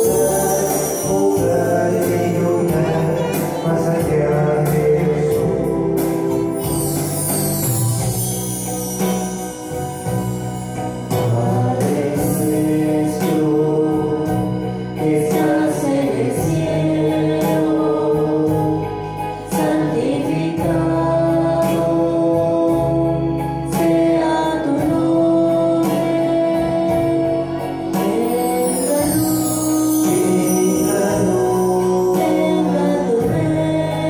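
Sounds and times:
choir singing: 0.0 - 6.9, 11.2 - 23.1
instrumental accompaniment: 0.0 - 34.0.

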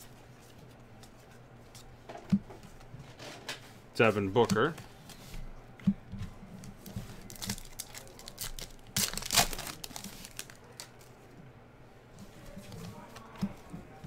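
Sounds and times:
foil pack tearing open: 7.2 - 10.9
wrapper crinkling: 7.2 - 11.1.

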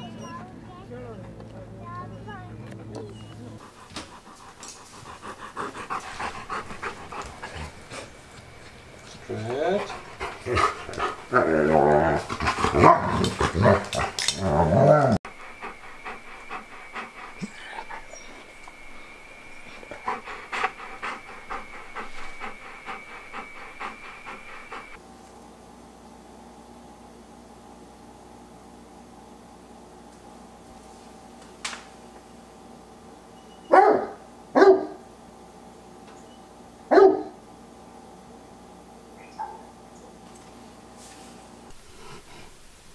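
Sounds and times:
dog panting softly: 1.9 - 11.3, 15.3 - 25.0
dog moaning: 3.2 - 25.0
dog barking: 12.7 - 13.9, 33.7 - 35.1, 36.9 - 37.4, 39.3 - 39.7.

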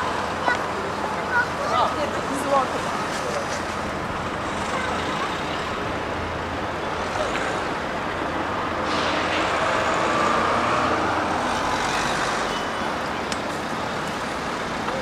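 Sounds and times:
city road traffic: 0.0 - 15.0
vehicle passing close: 8.7 - 12.5.

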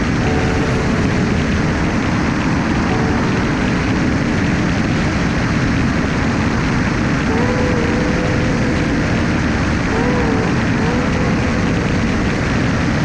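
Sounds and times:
faint wavering voice-like tone: 0.0 - 4.2, 7.3 - 13.0
airflow noise: 0.0 - 13.0
light aircraft engine droning: 0.0 - 13.0.

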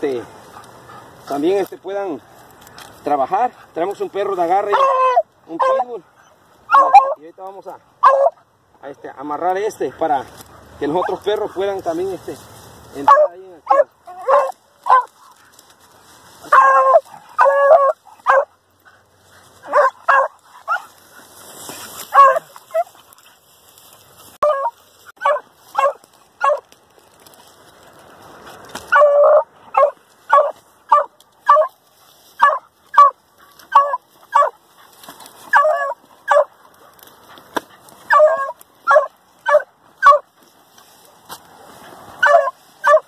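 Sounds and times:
dirt scraping: 0.0 - 8.3, 9.1 - 43.0
dogs barking sharply: 4.6 - 7.2, 8.0 - 8.5, 13.0 - 15.6, 16.4 - 21.0, 21.7 - 23.4, 24.4 - 26.7, 28.8 - 31.8, 32.4 - 40.3, 41.9 - 43.0.

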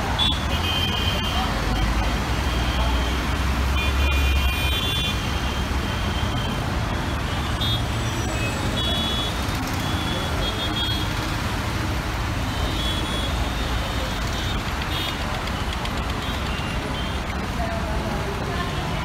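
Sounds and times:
traffic engines and tyres rumbling: 0.0 - 19.0.

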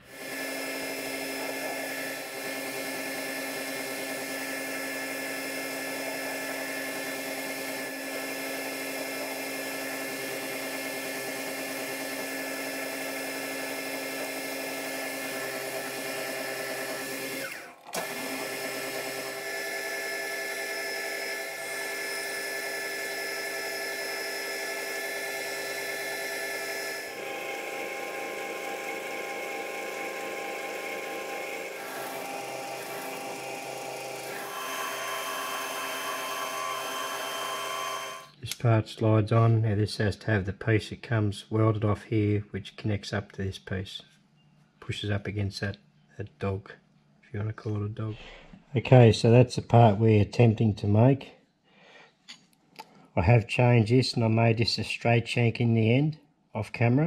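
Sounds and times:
metal lathe whining: 0.0 - 38.3.

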